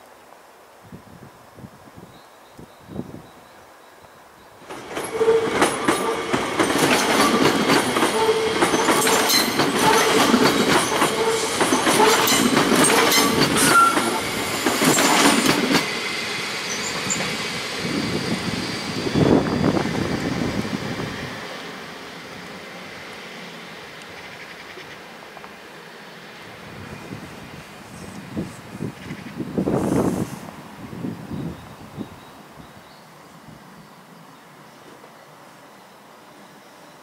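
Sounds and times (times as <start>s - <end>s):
train wheels clattering over rails: 4.6s - 20.3s
wheel squeals: 4.9s - 15.6s.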